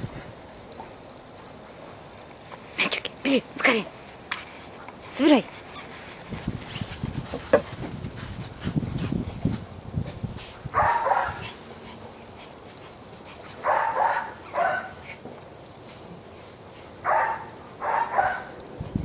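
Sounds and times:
dog barking in high yelps: 0:10.7 - 0:11.4, 0:13.6 - 0:15.0, 0:17.0 - 0:18.6.

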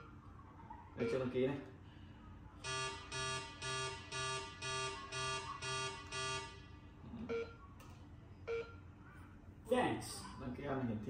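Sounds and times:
buzzing alarm beeps: 0:02.6 - 0:07.6, 0:08.5 - 0:08.9.

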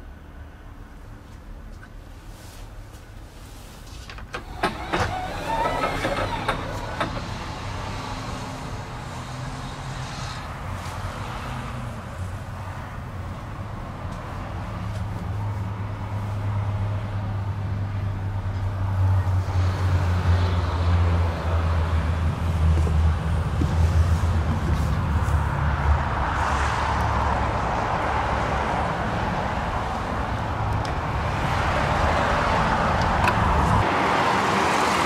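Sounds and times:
bus engine idling: 0:02.9 - 0:09.6.

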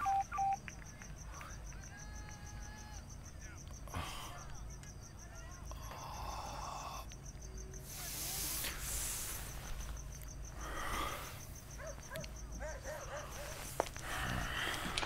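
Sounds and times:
cricket chirping: 0:00.0 - 0:15.0
brief hiss: 0:07.8 - 0:09.8.

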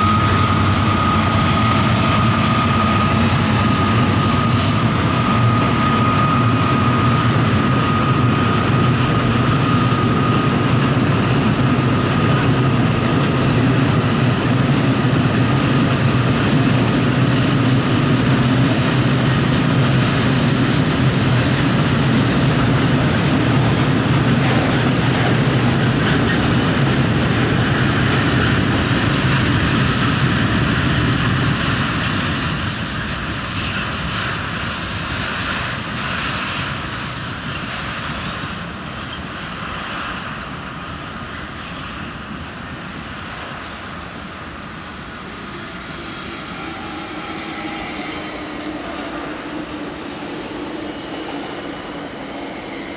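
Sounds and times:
diesel locomotive running under load: 0:00.0 - 0:52.9
thin steady whine: 0:43.2 - 0:52.9.

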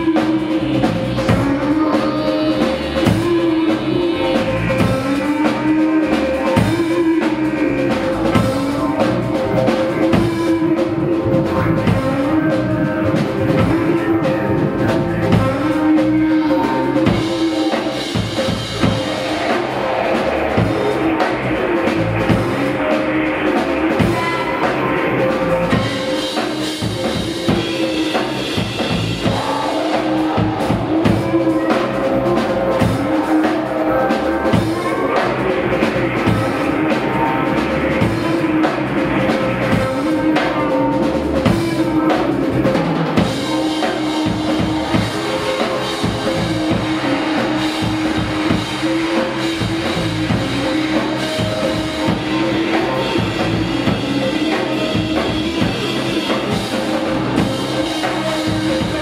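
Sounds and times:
electric guitars: 0:00.0 - 0:59.0
bass drum: 0:26.8 - 0:59.0.

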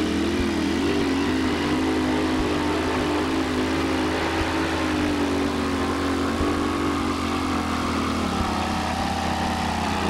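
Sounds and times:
pulling truck engine running hard: 0:00.0 - 0:10.0.

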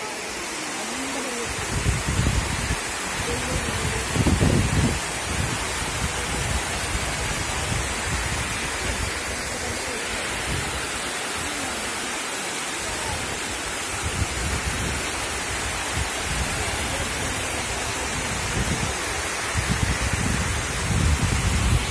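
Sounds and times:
water rushing over spillway: 0:00.0 - 0:21.9.

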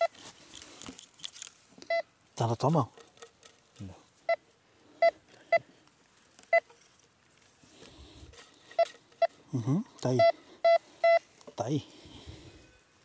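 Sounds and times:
metal detector beeping: 0:01.9 - 0:02.1, 0:06.5 - 0:06.7, 0:08.7 - 0:09.4, 0:10.1 - 0:11.3.

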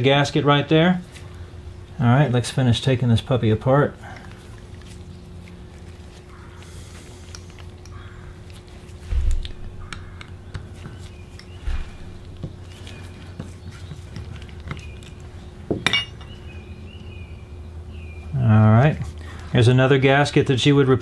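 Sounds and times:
faint steady hum: 0:00.0 - 0:21.0
dull thumps: 0:09.0 - 0:14.4
small metal parts clinking: 0:14.1 - 0:16.4.

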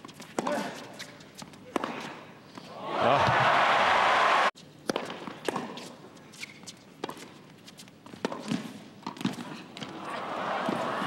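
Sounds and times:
tennis ball bouncing: 0:01.4 - 0:02.1, 0:04.8 - 0:06.0, 0:07.0 - 0:07.4, 0:08.0 - 0:10.0.

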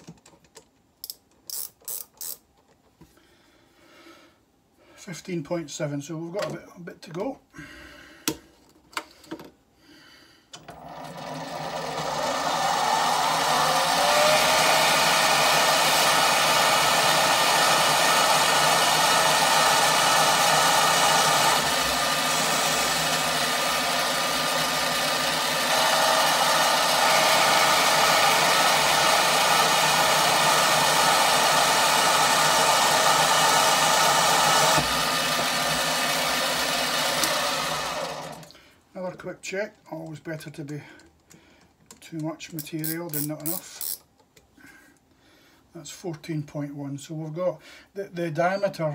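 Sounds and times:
lathe motor whine: 0:10.6 - 0:38.5.

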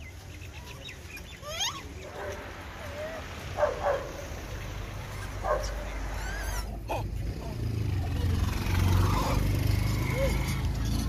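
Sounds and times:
low traffic hum: 0:00.0 - 0:11.0
monkeys squealing and yipping: 0:01.4 - 0:02.0, 0:05.0 - 0:07.1, 0:08.0 - 0:11.0.

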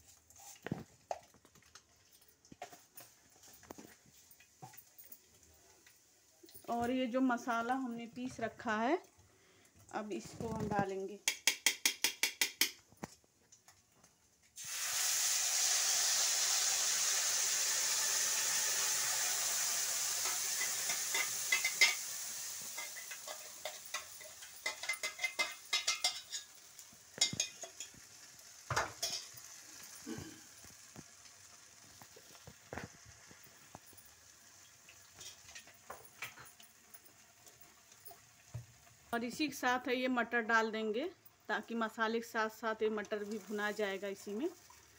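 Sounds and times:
paste sizzling in hot oil: 0:14.6 - 0:39.9, 0:41.5 - 0:44.9
spoon scraping a metal pan: 0:20.2 - 0:26.6.

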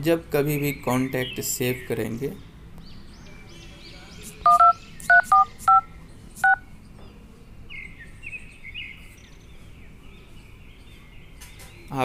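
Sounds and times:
keypad touch-tone beeps: 0:04.5 - 0:05.8.

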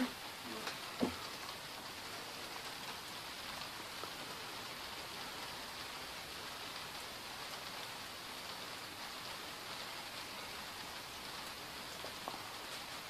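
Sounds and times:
rain falling: 0:00.0 - 0:13.0.

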